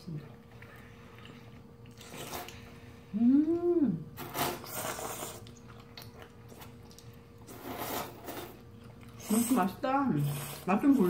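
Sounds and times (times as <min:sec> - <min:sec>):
person humming mmm: 0:03.1 - 0:04.1
noodle slurping: 0:04.2 - 0:05.7, 0:07.4 - 0:09.6.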